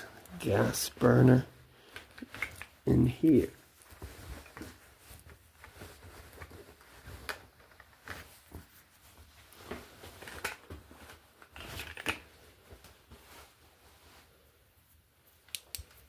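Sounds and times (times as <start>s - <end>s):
soft footsteps: 3.5s - 7.5s.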